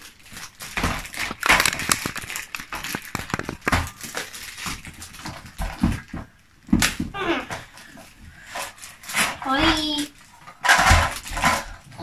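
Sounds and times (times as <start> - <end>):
plastic bag crinkling: 0.0 - 5.6
plastic track pieces clicking: 1.1 - 3.9.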